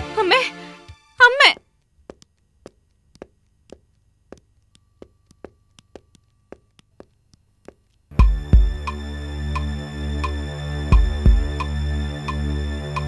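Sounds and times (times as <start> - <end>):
quick footsteps: 1.5 - 8.7.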